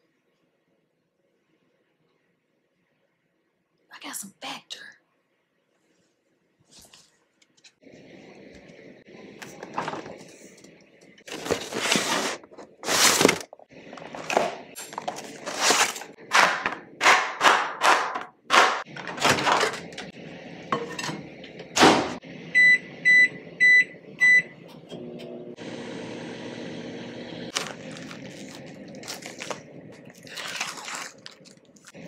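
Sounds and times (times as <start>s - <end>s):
plastic film crinkling and tearing: 11.3s - 16.2s, 27.5s - 32.0s
microwave keypad beeps: 22.6s - 24.5s.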